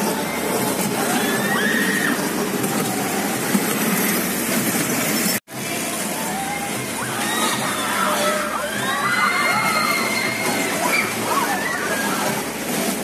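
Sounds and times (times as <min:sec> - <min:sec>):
crowd noise: 0:00.0 - 0:13.0
ride machinery: 0:00.0 - 0:13.0
people shouting shrilly: 0:01.0 - 0:02.3, 0:06.3 - 0:12.4.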